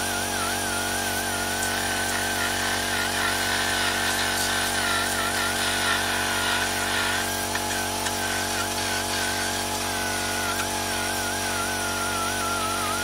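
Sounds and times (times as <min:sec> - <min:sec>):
power tool grinding metal: 0:00.0 - 0:13.0
steady mechanical hum: 0:00.0 - 0:13.0.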